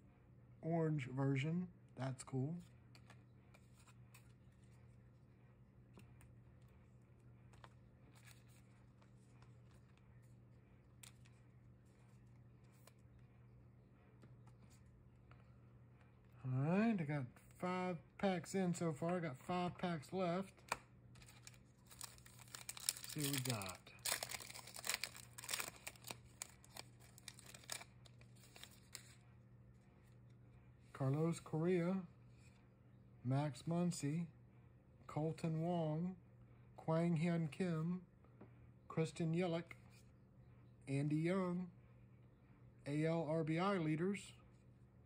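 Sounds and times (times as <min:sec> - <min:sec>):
steady low hum: 0:00.0 - 0:45.0
hands handling trading cards: 0:05.8 - 0:13.2, 0:20.6 - 0:29.2
card pack wrapper tearing: 0:21.2 - 0:29.2.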